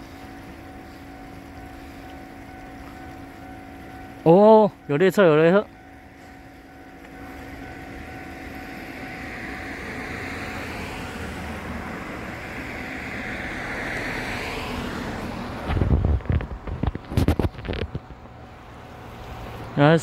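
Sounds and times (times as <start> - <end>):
vehicle tyres and engine passing: 5.9 - 20.0
wind buffeting microphone: 10.1 - 18.4.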